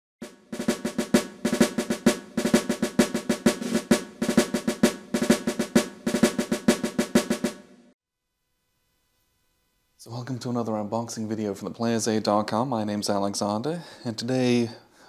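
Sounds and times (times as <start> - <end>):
intro music with rapid drums: 0.2 - 8.0.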